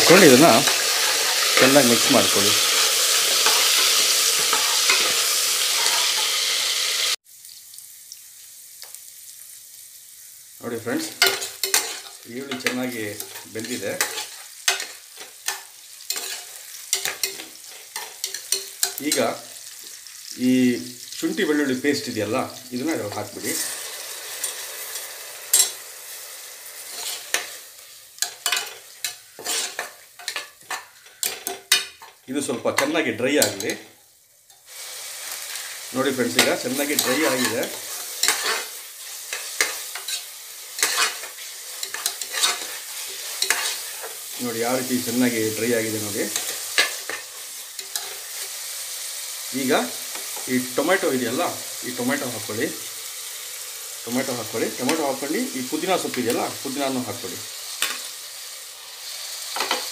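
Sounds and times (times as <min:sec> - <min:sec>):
onions sizzling in hot oil: 0:00.0 - 0:59.9
faint hiss with light ticks: 0:07.4 - 0:09.1
spoon scraping metal pot: 0:11.2 - 0:14.9, 0:26.9 - 0:27.6, 0:28.2 - 0:32.1, 0:36.3 - 0:38.7, 0:39.3 - 0:44.2
metal ladle scraping a pot: 0:29.4 - 0:31.6, 0:36.9 - 0:38.7, 0:40.8 - 0:44.2.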